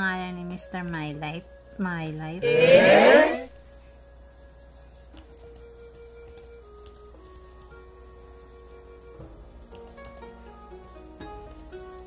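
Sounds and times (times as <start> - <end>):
soft music with held notes: 0.0 - 12.0.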